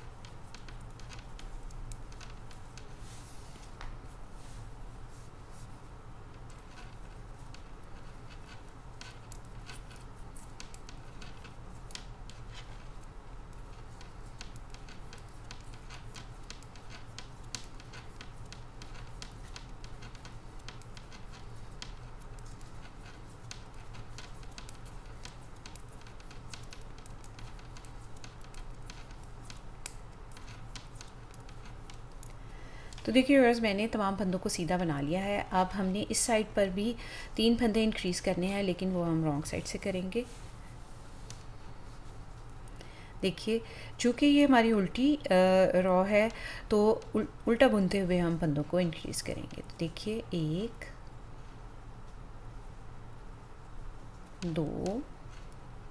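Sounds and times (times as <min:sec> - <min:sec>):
knitting needles clicking: 0:00.0 - 0:02.9, 0:06.3 - 0:33.3.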